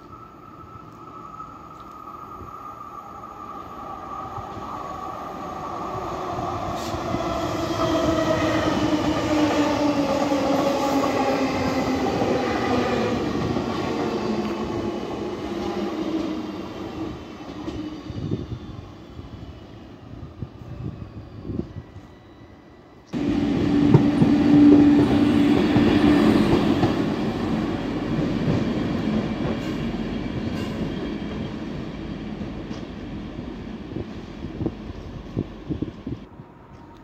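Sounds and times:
train whine falling in pitch: 21.4s - 31.4s
train wheels rumbling on rails: 23.2s - 36.9s.

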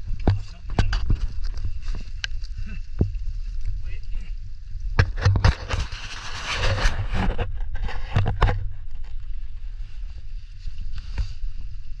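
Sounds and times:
scrambling over rock and leaves: 0.0s - 4.1s
camera rubbing rumble: 0.0s - 12.0s.

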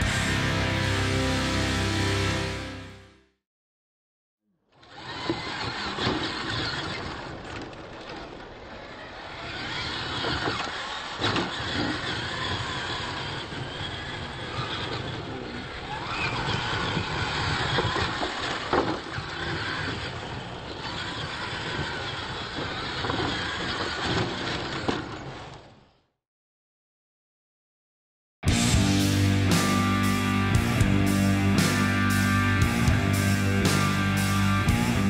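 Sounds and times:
toy truck motors whining: 4.7s - 25.9s
tyres churning on dirt: 4.8s - 25.8s.

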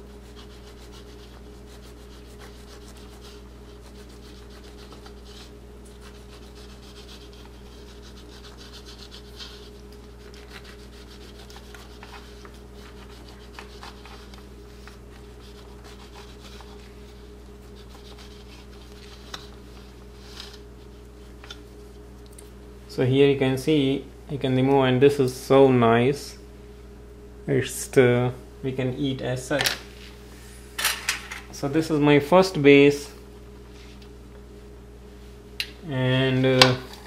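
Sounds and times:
knife sawing through cake: 0.0s - 14.4s, 15.3s - 19.4s
steady low hum: 0.0s - 37.0s.

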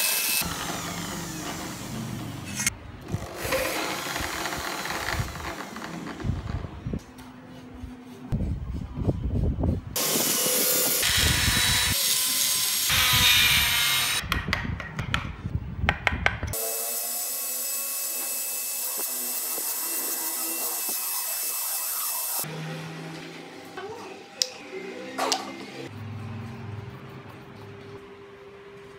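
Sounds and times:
rotary tool grinding wood: 3.1s - 6.4s.

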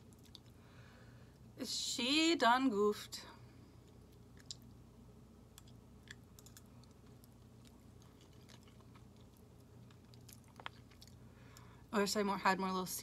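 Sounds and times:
chewing noodles: 0.0s - 0.6s, 3.9s - 4.8s, 5.5s - 11.8s.

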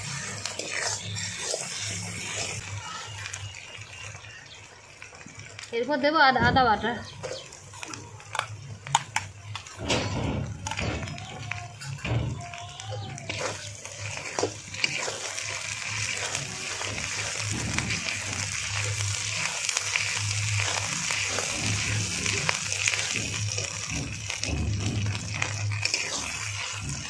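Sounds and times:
spatula clicks and scrapes: 0.0s - 2.7s, 13.2s - 27.0s
food sizzling in oil: 0.0s - 27.0s.

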